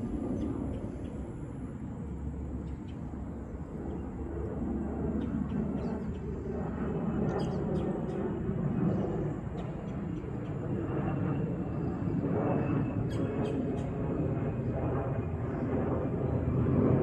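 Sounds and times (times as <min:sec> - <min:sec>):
jet engine rumble overhead: 0:00.0 - 0:17.0.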